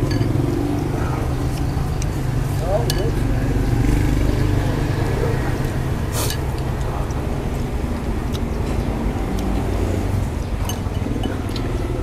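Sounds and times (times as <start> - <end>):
chopsticks clicking on bowls: 0.0 - 3.6, 5.6 - 9.8, 10.6 - 12.0
road traffic rumble: 0.0 - 12.0.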